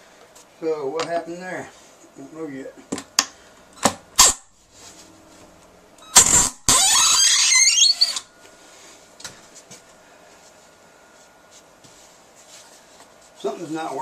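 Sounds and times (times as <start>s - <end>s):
cordless drill driving a screw: 6.2s - 8.2s.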